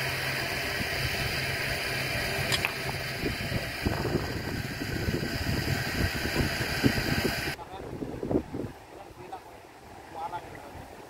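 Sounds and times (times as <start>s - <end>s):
vehicle engine idling: 0.0s - 7.6s
rough rumbling on microphone: 0.0s - 8.8s.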